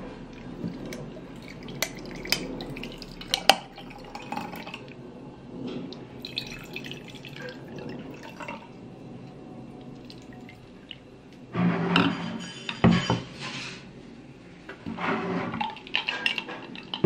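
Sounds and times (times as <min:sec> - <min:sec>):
coffee pouring over ice: 0:00.4 - 0:04.9, 0:06.2 - 0:08.8.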